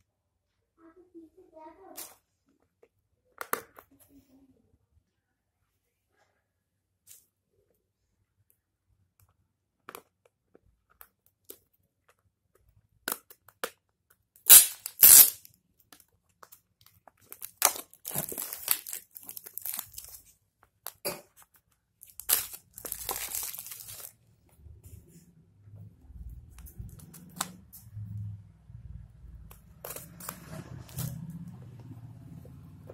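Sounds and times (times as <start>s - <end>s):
plastic film tearing: 14.5s - 15.5s, 17.3s - 20.2s, 22.0s - 24.2s
plastic packaging crinkling: 16.8s - 20.9s, 22.0s - 24.2s.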